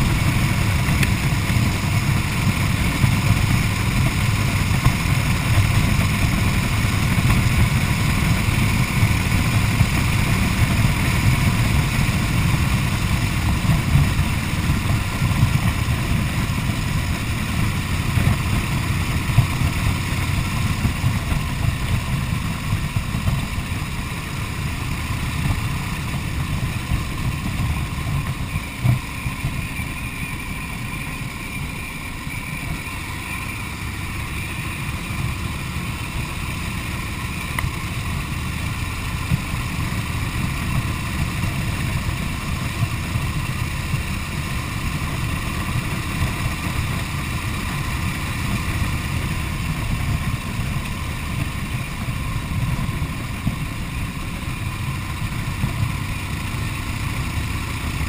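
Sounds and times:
wind noise: 0.0s - 36.1s
motorcycle engine running: 0.0s - 58.0s.

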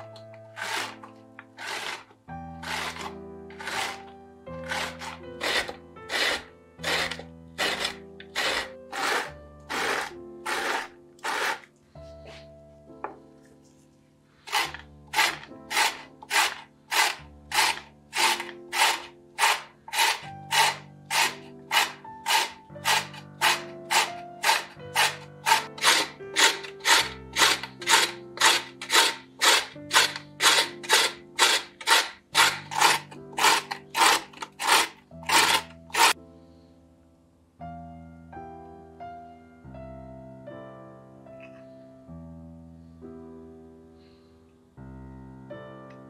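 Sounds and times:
carrot grating on metal grater: 0.0s - 11.7s, 14.5s - 36.2s
soft background music: 0.0s - 46.0s.

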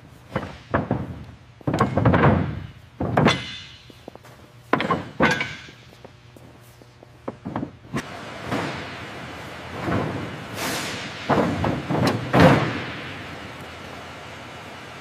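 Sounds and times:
heavy thuds and knocks: 0.3s - 3.7s, 11.1s - 13.1s.

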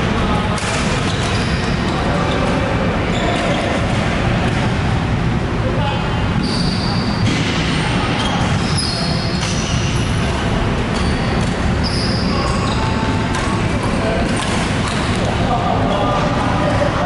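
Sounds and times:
loud din in a hall: 0.0s - 17.0s
shoes squeaking on court floor: 1.0s - 3.9s, 6.4s - 16.4s.

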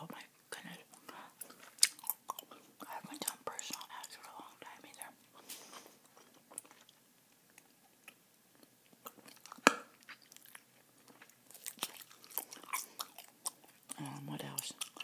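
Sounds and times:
gum chewing clicks and smacks: 0.6s - 15.0s
sharp gum snap: 1.8s - 2.1s, 9.6s - 9.9s.

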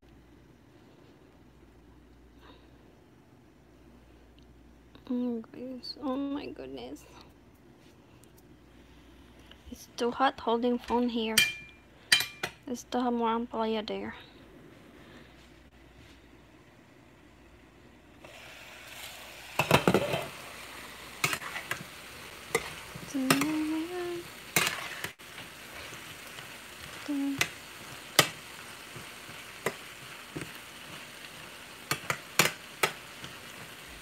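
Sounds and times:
vegetables sizzling in a frying pan: 16.7s - 34.0s
spatula scraping a pan: 19.0s - 20.4s, 21.2s - 23.8s, 24.4s - 33.7s.

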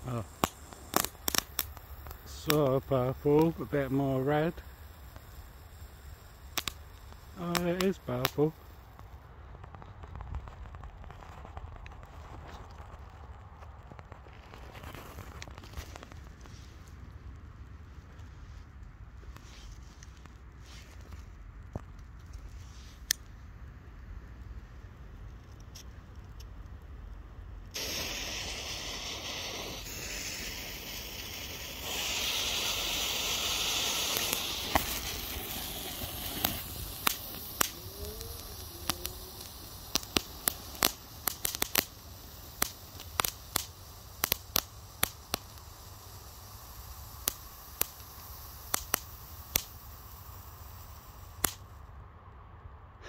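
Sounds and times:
firework fountain hissing: 0.0s - 17.3s, 27.7s - 51.8s
sharp crackling pops: 0.0s - 23.5s, 24.3s - 51.9s.

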